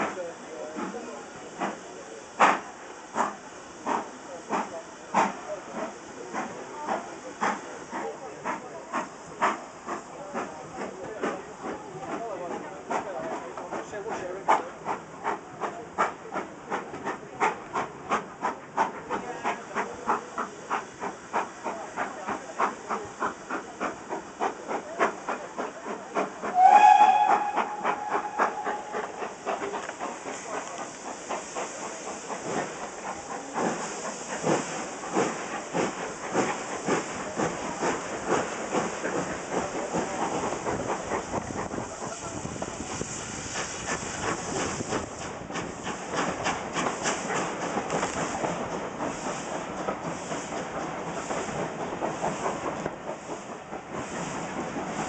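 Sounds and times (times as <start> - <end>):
rush of train noise: 0.0 - 55.0
steam locomotive exhaust chuffing: 0.0 - 55.0
steam whistle blast: 26.5 - 29.1.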